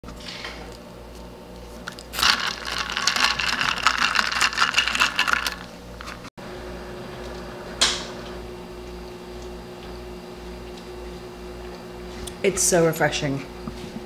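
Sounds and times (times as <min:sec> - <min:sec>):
ice cubes clinking in steel tumbler: 0:02.2 - 0:05.7.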